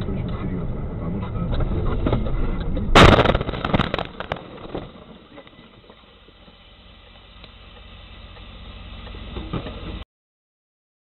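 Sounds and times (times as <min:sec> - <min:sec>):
faint low rumble: 0:00.0 - 0:10.0
loud truck crash impact: 0:02.9 - 0:05.9.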